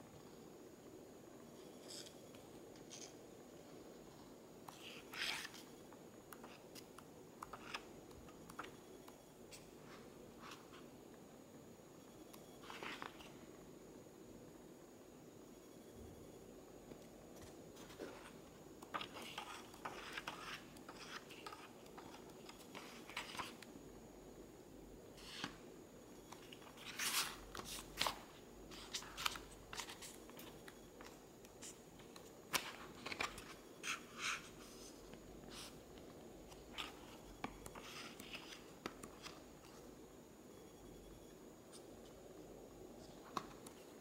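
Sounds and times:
book pages turning: 17.4s - 23.6s.

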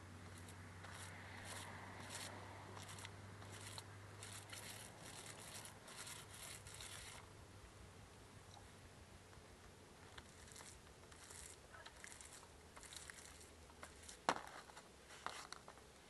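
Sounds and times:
paint roller swishing on wood: 0.3s - 7.2s, 10.2s - 15.6s.

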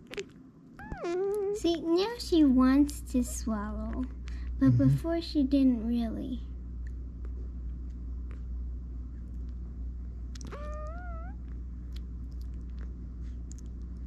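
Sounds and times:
steady low hum: 0.0s - 14.0s
puppy crying: 0.8s - 1.6s, 10.4s - 11.4s.

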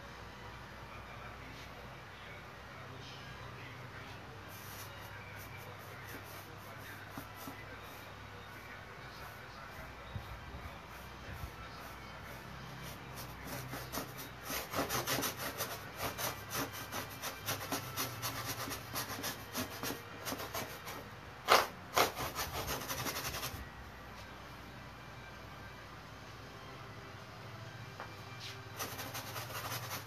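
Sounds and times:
brush scrubbing a hard board: 10.9s - 21.0s, 28.8s - 30.0s.

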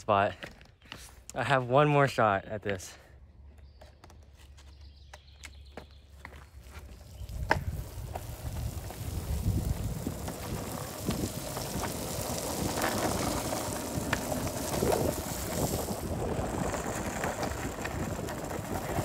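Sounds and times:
longboard wheels rolling on asphalt: 3.4s - 19.0s
wind on microphone: 7.0s - 19.0s.

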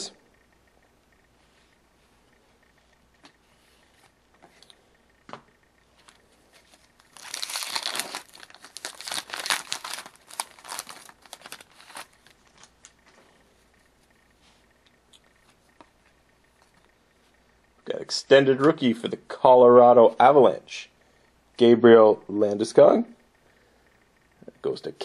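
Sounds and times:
plastic wrapper crumpled and torn: 6.6s - 13.0s.

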